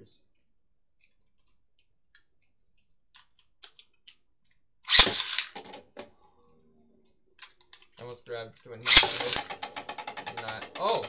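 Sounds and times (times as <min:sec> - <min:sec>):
light plastic clicks: 0:01.0 - 0:04.6
spinning top cracking into stadium: 0:04.9 - 0:06.0, 0:08.9 - 0:11.0
rattling plastic clatter: 0:04.9 - 0:06.1, 0:08.9 - 0:11.0.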